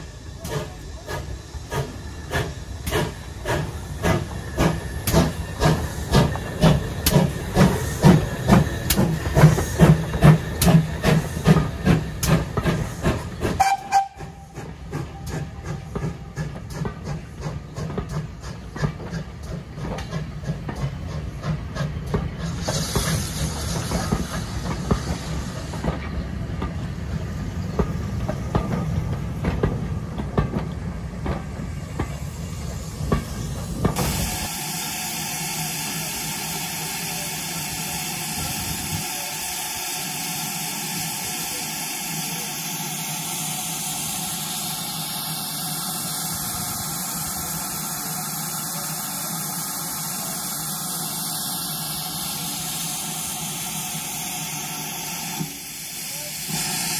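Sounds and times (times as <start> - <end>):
steam hissing: 0.0 - 56.9
train wheels clattering over rail joints: 0.4 - 32.4.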